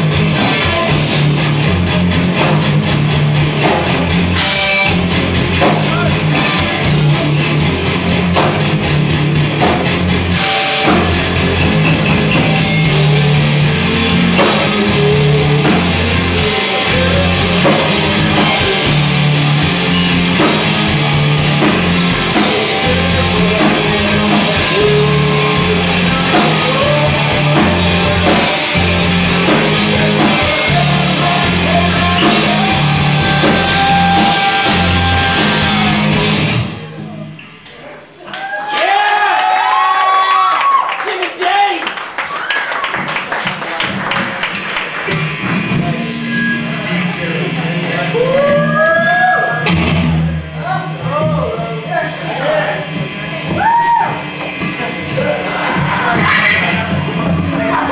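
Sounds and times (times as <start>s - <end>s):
drum hits: 0.0s - 36.9s, 49.6s - 51.5s
heavy bass notes: 0.0s - 37.7s, 45.1s - 57.9s
rock band playing: 0.0s - 40.8s, 41.4s - 57.9s.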